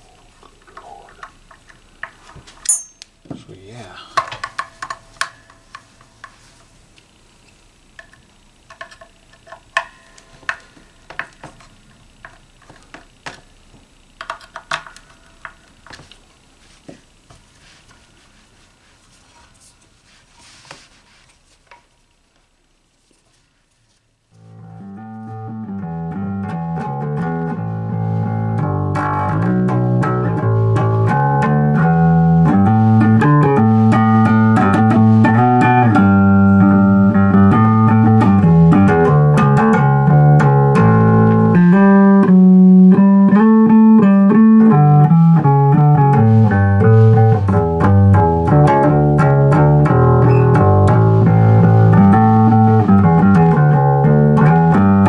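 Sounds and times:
bass guitar plucked: 24.3 - 55.0.

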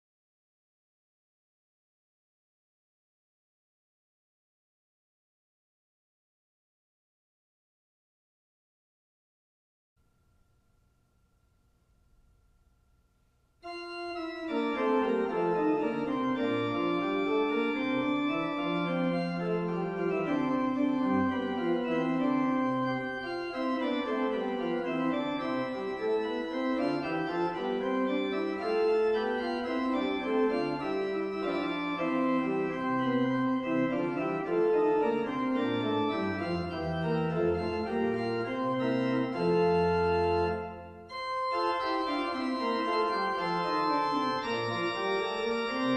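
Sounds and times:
church organ playing chords: 13.6 - 45.9.

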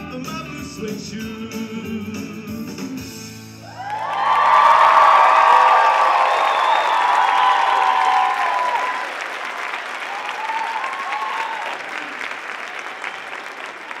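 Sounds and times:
whoops: 3.6 - 9.3, 10.0 - 13.2
audience applauding and cheering: 3.6 - 14.0.

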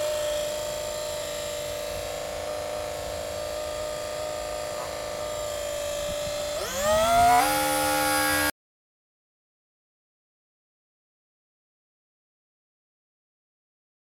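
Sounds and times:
model jet motor whining: 0.0 - 8.5.

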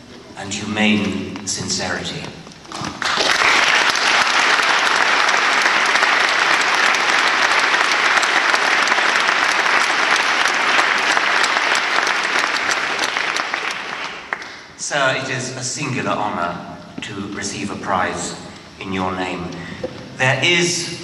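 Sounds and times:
audience applauding: 2.7 - 14.7.

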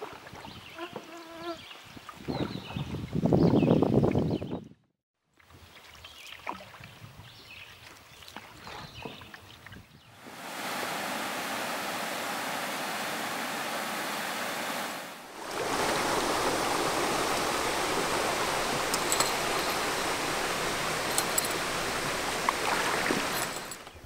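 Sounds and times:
rushing water: 10.2 - 24.0.

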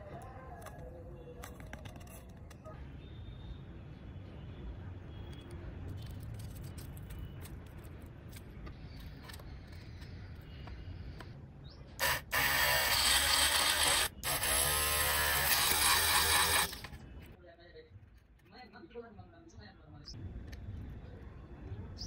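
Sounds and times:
mini drill drilling into wood: 12.0 - 16.9.

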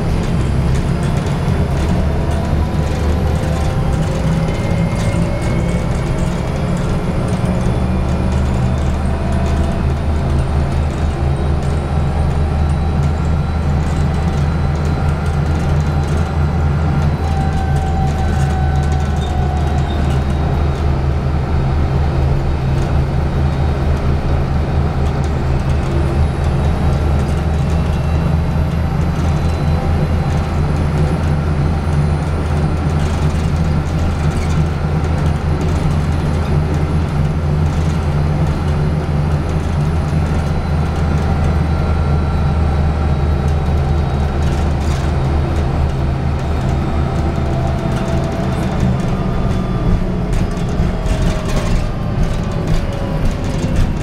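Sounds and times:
bus diesel engine humming: 0.0 - 54.0
road noise: 0.0 - 54.0.

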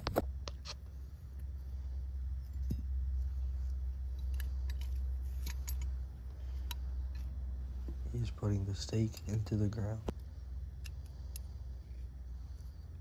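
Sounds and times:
steady low rumble: 0.0 - 13.0
metal chain clinking and rattling: 4.1 - 6.1.

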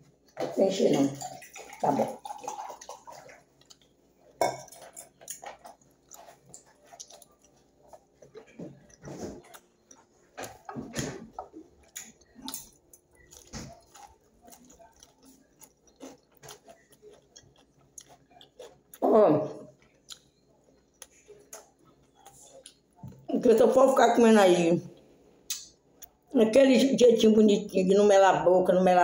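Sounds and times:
chewing: 1.2 - 23.3.

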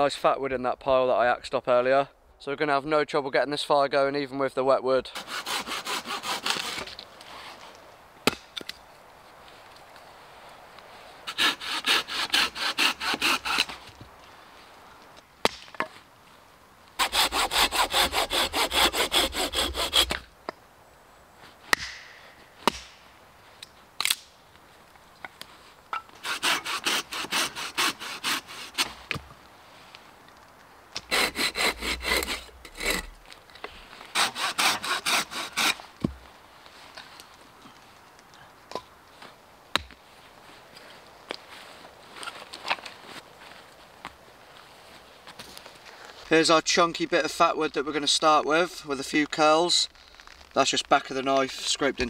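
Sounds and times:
hand saw cutting wood: 5.1 - 7.0, 11.3 - 13.8, 17.0 - 20.2, 26.2 - 29.0, 31.0 - 33.2, 34.0 - 35.9.

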